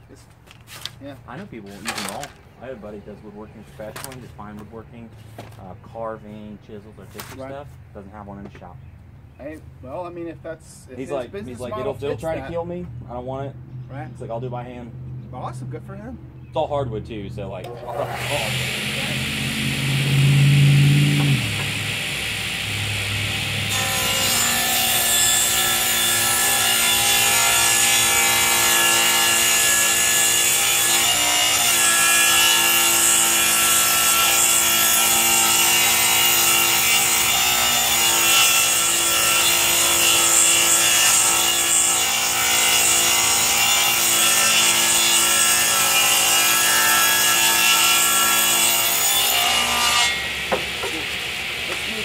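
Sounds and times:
table saw cutting wood: 17.7s - 52.0s.

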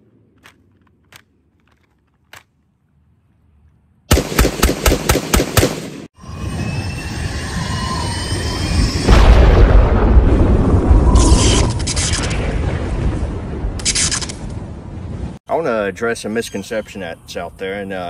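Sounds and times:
rifle firing rapidly: 4.1s - 6.1s
loud boom: 8.9s - 13.8s.

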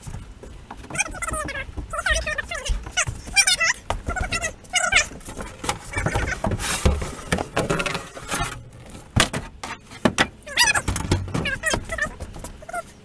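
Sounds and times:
wood panel knocking and scraping: 0.0s - 12.6s.

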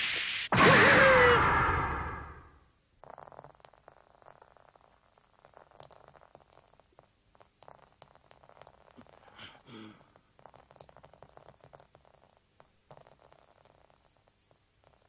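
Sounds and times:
faint pitched sound: 0.5s - 2.6s.

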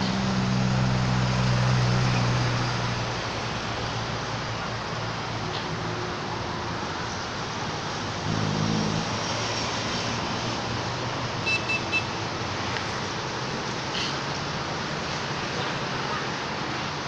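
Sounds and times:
low engine hum: 0.0s - 11.4s
road traffic noise: 0.0s - 17.0s.

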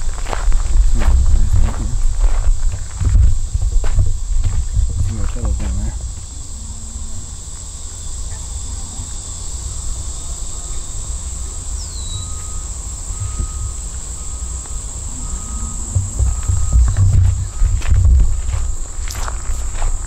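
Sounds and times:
insects droning: 0.0s - 20.0s
low rumble: 0.0s - 20.0s
brief even tones: 12.0s - 17.7s.

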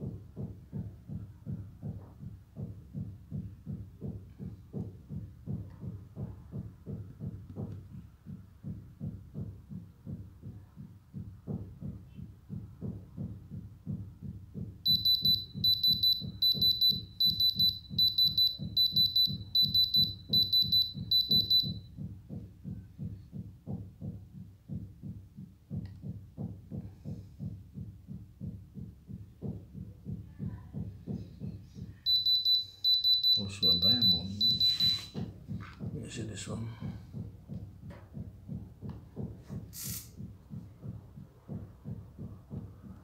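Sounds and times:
short high beeps: 14.9s - 21.8s, 32.1s - 35.2s.

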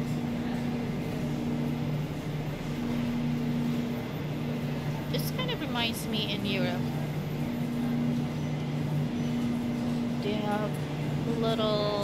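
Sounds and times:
refrigerated display cases humming: 0.0s - 12.0s.

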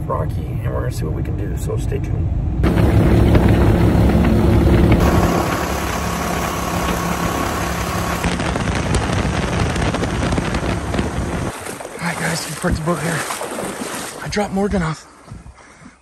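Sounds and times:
boat motor running: 2.6s - 14.2s
wind and water rushing: 2.6s - 15.6s.

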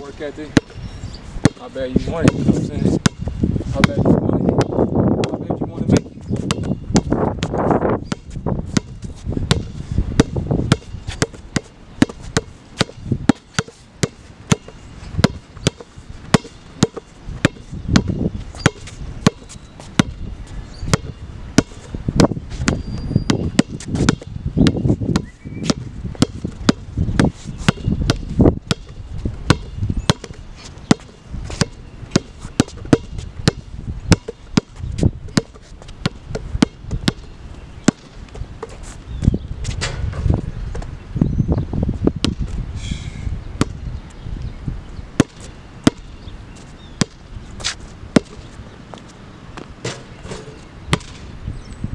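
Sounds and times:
basketball bouncing on hard court: 0.5s - 0.8s, 1.4s - 20.2s, 20.9s - 38.7s, 42.2s - 42.5s, 45.2s - 46.1s, 47.0s - 47.2s, 48.1s - 48.4s, 49.6s - 51.2s.

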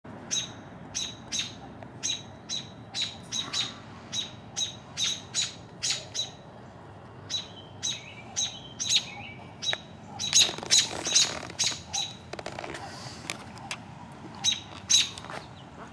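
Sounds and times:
robin alarm calls: 0.2s - 13.8s, 14.4s - 15.7s.

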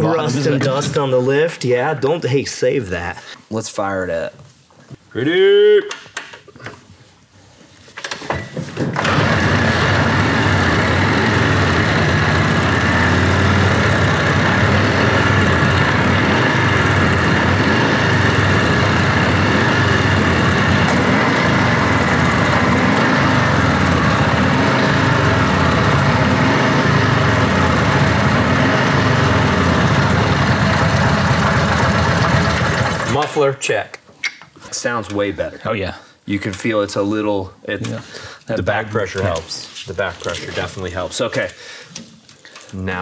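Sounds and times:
motorcycle engine starting: 9.0s - 33.3s.

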